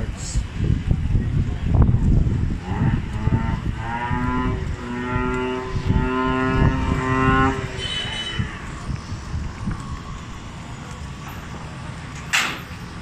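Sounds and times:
wind rumble on microphone: 0:00.0 - 0:13.0
two-note vehicle horn: 0:06.6 - 0:08.8.

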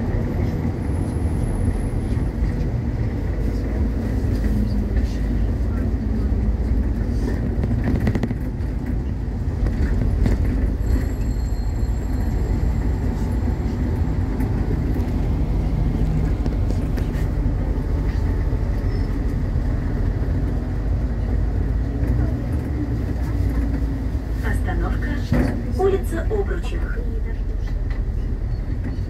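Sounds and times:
bus engine and road rumble: 0:00.0 - 0:29.0.

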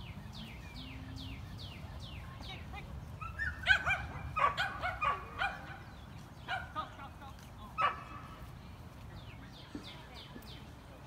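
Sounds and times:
dog yipping: 0:03.2 - 0:05.8.

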